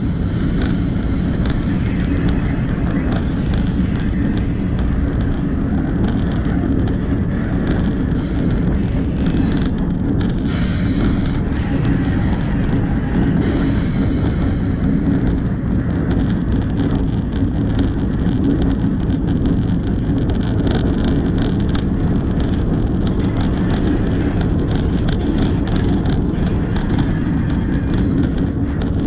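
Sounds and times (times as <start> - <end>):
diesel locomotive rumbling: 0.0 - 29.0
wind buffeting microphone: 0.0 - 29.0.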